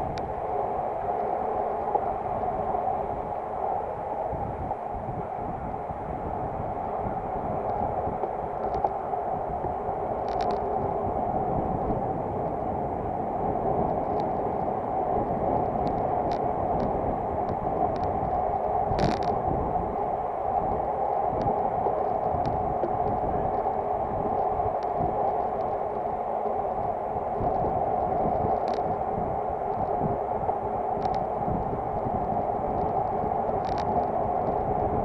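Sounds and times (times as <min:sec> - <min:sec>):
wind on microphone: 0:00.0 - 0:35.0
wind rush and tyre noise: 0:00.0 - 0:35.0
light clicks: 0:10.2 - 0:10.7.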